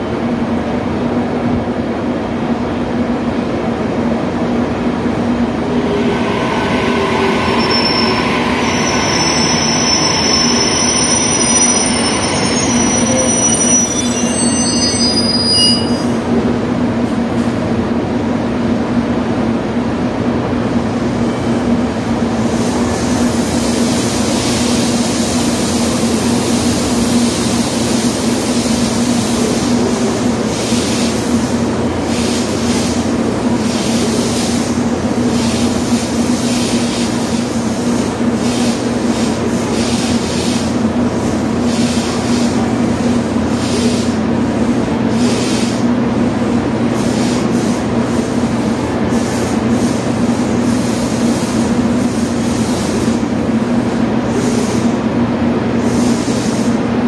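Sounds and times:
electric train humming: 0:02.3 - 0:47.0
high thin tones: 0:05.0 - 0:16.2.

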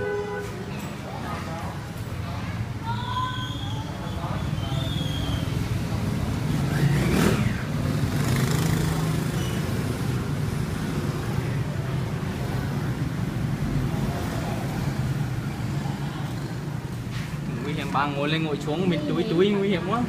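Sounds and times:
road traffic: 0:00.0 - 0:20.0
vehicle passing: 0:04.2 - 0:20.0.

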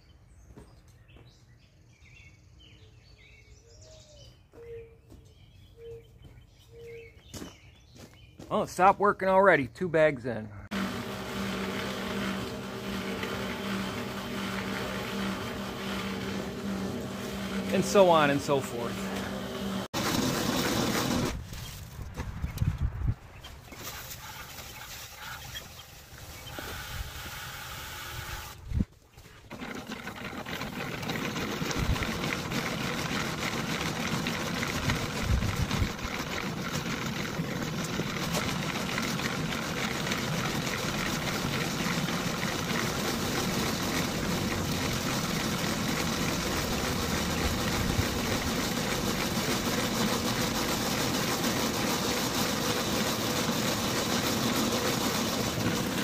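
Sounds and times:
cement mixer running: 0:10.7 - 0:21.8, 0:23.8 - 0:56.0.

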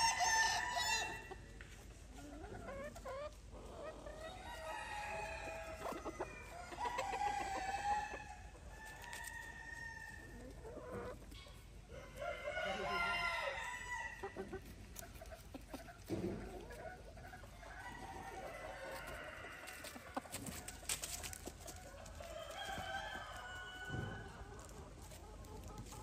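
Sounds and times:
roosters crowing: 0:00.0 - 0:01.4, 0:04.2 - 0:10.4, 0:11.9 - 0:14.3, 0:17.6 - 0:20.9, 0:22.2 - 0:24.4
hens clucking: 0:00.0 - 0:09.4, 0:10.1 - 0:26.0.

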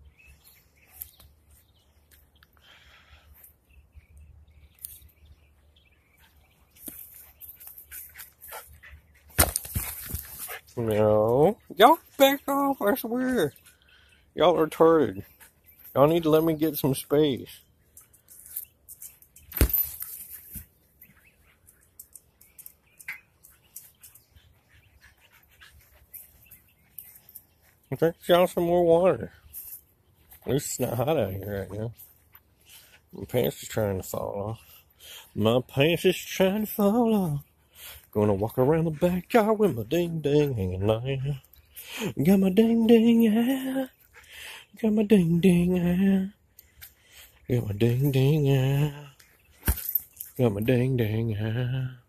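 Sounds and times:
faint rustling and scuffing: 0:06.2 - 0:11.1
soccer ball kicked on grass: 0:09.3 - 0:10.4, 0:19.5 - 0:20.0.

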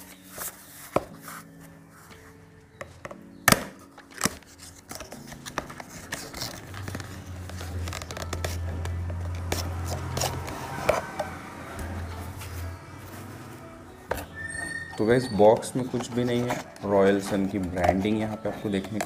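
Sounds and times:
cardboard rustling and scraping: 0:00.0 - 0:02.4, 0:04.0 - 0:11.3, 0:15.0 - 0:19.0.

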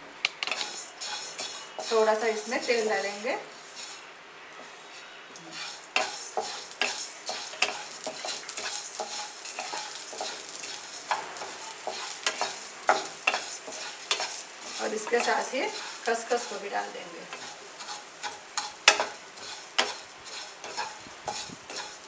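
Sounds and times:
oil sizzling: 0:00.0 - 0:22.0
wooden spatula scraping a wok: 0:00.4 - 0:22.0.

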